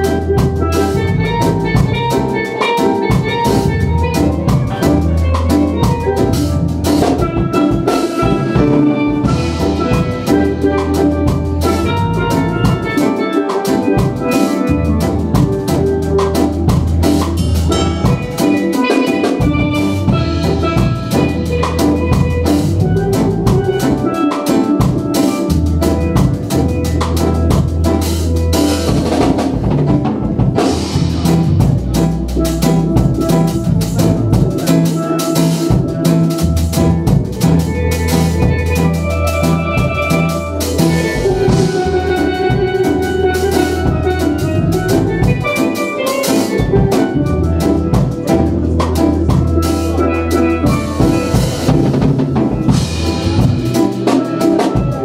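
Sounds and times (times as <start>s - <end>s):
bass notes: 0.0s - 55.0s
drum kit: 0.0s - 55.0s
keyboard: 0.0s - 55.0s
steel pans playing melody: 0.0s - 55.0s.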